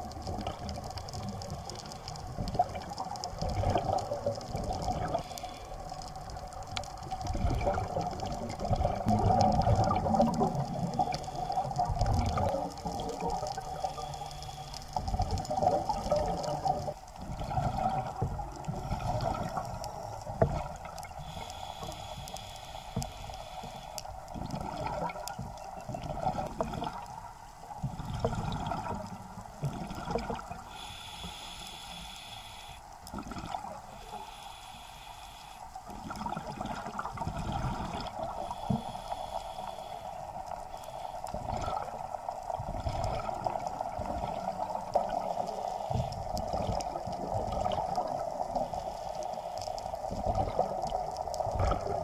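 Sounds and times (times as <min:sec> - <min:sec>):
underwater regulator bubbles gurgling: 0:00.0 - 0:52.0.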